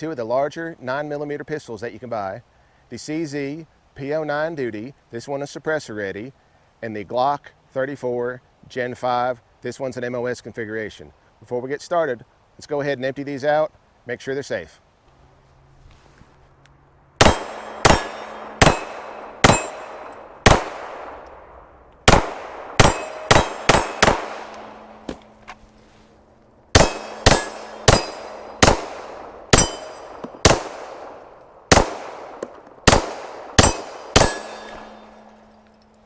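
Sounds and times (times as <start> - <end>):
pistol shots: 17.2 - 25.4, 26.7 - 35.6.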